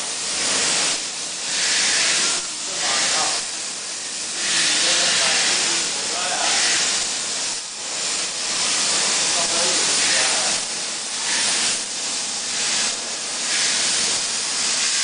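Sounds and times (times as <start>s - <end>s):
plasma torch hissing: 0.0s - 15.0s.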